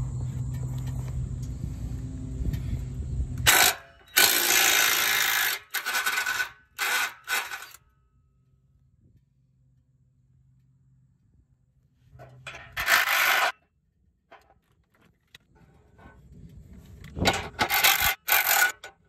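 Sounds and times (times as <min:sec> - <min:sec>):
steady low hum: 0:00.0 - 0:06.8
impact wrench hammering: 0:03.5 - 0:07.8.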